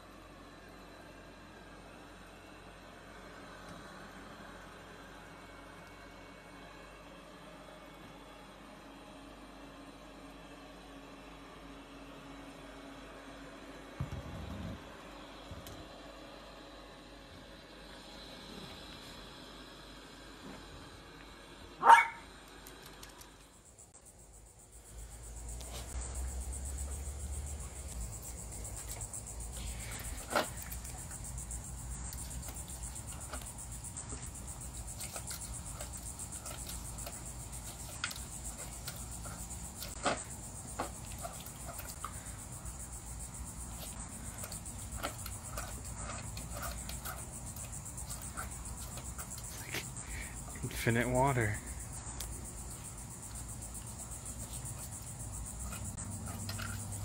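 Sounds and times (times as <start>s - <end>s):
insects chirring: 17.6s - 57.0s
puppy barking: 21.8s - 22.3s.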